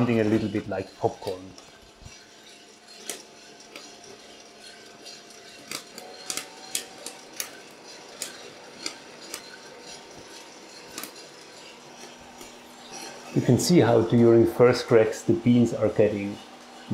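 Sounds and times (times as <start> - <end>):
coffee beans cracking: 0.0 - 13.4
roaster humming: 0.0 - 16.9.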